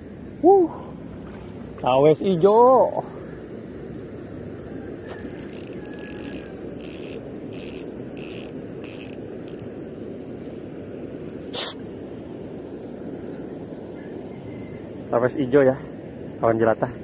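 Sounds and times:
fishing reel clicking: 5.0 - 11.7.

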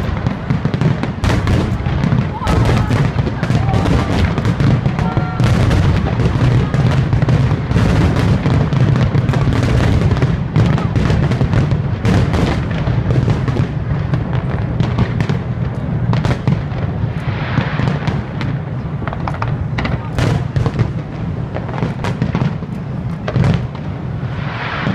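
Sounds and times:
firework shells bursting: 0.0 - 24.9.

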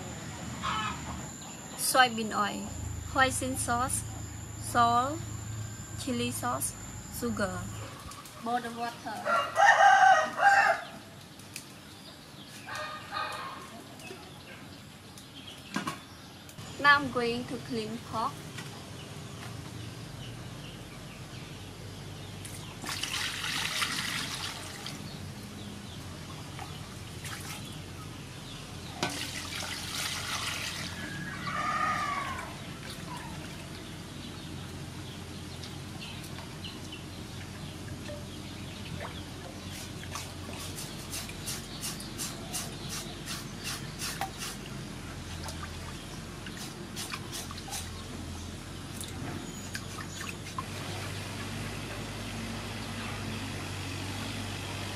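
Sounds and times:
water sloshing in metal basin: 22.4 - 25.2, 28.9 - 31.4.

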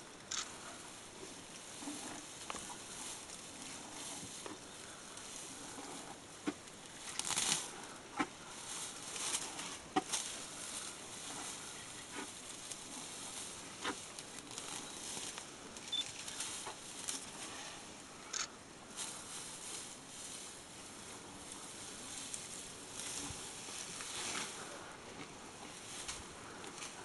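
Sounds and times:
rustling vegetation: 0.0 - 27.0
stems and twigs snapping: 6.5 - 8.3, 13.8 - 17.3.

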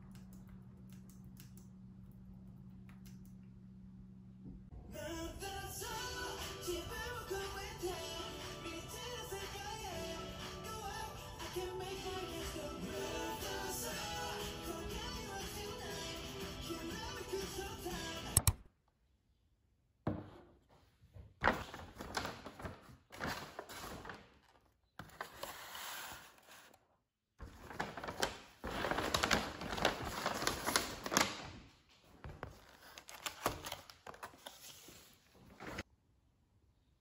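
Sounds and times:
paper bag rustling: 21.4 - 26.8, 27.4 - 35.8
plastic containers crinkling: 27.4 - 31.6.

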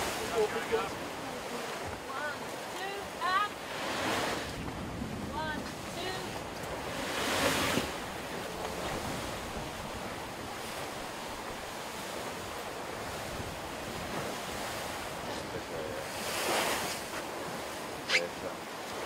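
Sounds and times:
rushing sea water: 0.0 - 19.0
wind buffeting microphone: 3.6 - 15.6.

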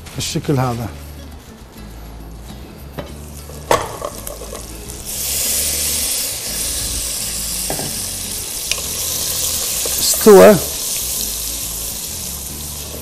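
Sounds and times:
meat sizzling in hot oil: 3.2 - 13.0.

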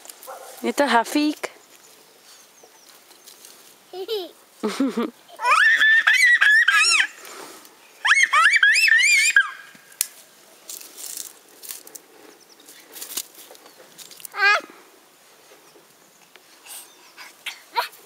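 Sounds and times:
rustling: 0.0 - 4.7, 9.7 - 18.0.

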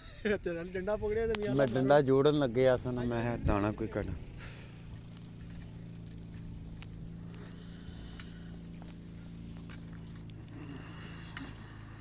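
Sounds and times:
steady low hum: 0.0 - 12.0
footsteps on dirt path: 4.4 - 10.5.

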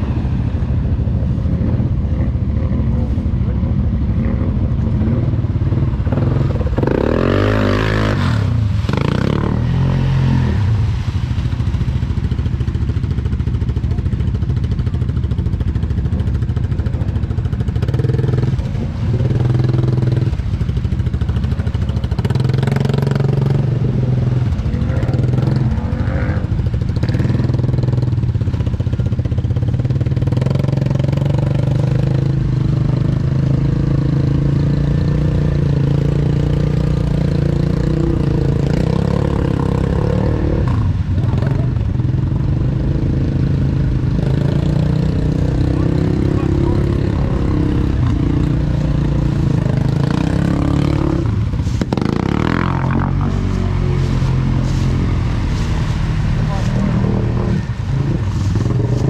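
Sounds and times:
water splashing: 0.0 - 59.0
quad engine revving: 6.1 - 11.1, 22.1 - 28.1, 29.8 - 59.0.

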